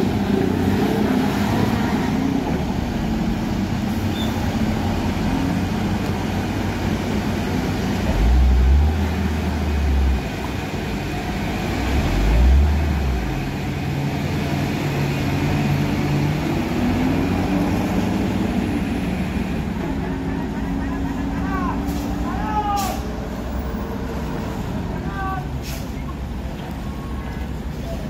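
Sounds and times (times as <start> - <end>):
diesel truck engines labouring: 0.0 - 28.0.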